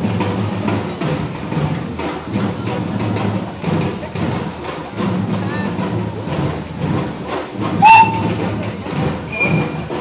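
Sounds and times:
steam engine whistle blast: 7.8 - 8.5, 9.3 - 9.9.

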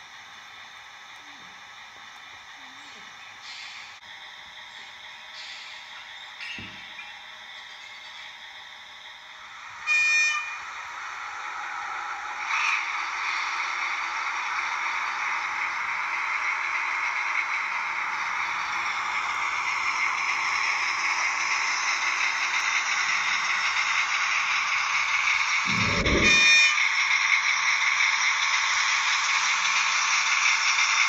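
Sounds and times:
model train motor whirring: 8.4 - 31.0
buzzy high tone: 25.7 - 26.8.

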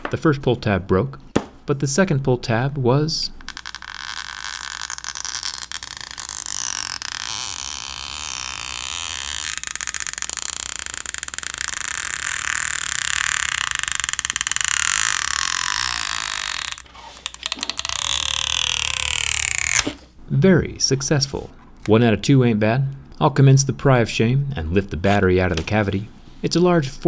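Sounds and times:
adhesive creaking and crackling: 3.4 - 20.1.

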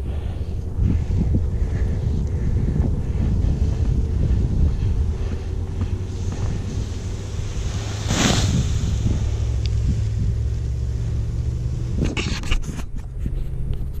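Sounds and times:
wind buffeting microphone: 0.0 - 14.0
rustling and scuffing on sand: 0.4 - 11.0.

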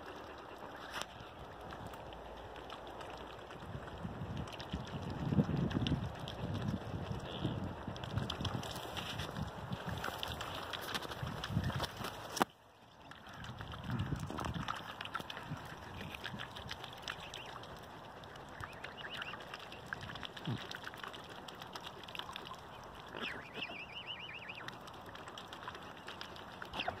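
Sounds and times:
small water splashes: 0.0 - 27.0
wet clicks of bills: 8.0 - 23.6, 24.6 - 27.0
high wavering bird calls: 18.5 - 19.9, 22.6 - 24.8, 26.7 - 27.0.

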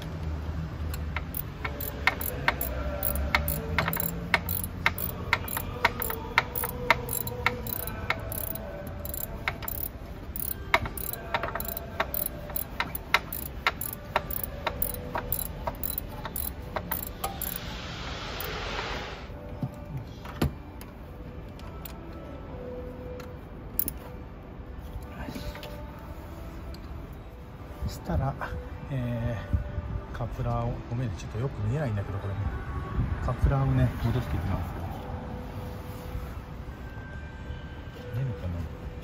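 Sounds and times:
ratchet wrench clicking: 0.9 - 17.7, 23.8 - 24.0.

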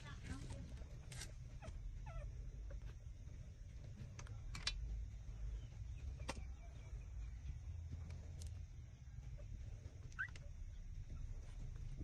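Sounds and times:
low steady rumble: 0.0 - 12.0
puppy squeak: 10.1 - 10.5.

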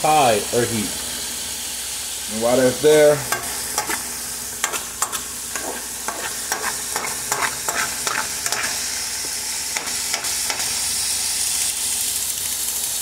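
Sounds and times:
vegetables sizzling in hot oil: 0.0 - 13.0
utensil scraping a pan: 3.8 - 8.9.

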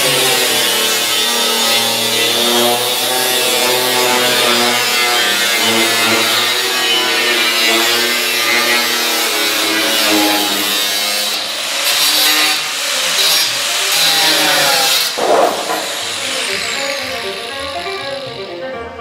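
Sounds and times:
angle grinder cutting sheet metal: 0.0 - 18.6
background music: 13.1 - 19.0.

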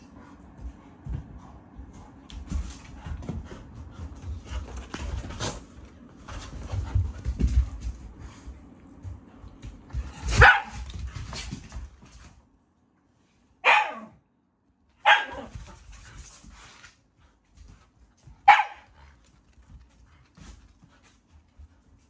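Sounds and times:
dog barking sharply: 10.4 - 10.8, 13.6 - 14.1, 15.0 - 15.5, 18.5 - 18.8.

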